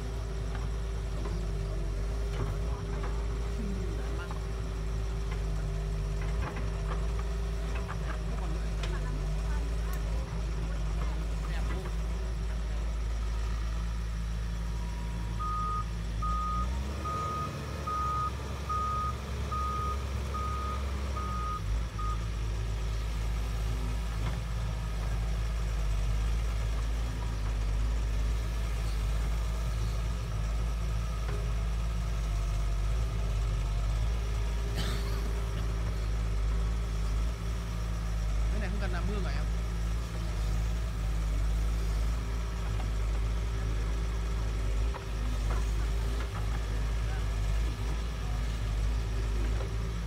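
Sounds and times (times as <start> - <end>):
excavator diesel engine running: 0.0 - 50.0
travel alarm beeping: 15.4 - 22.2.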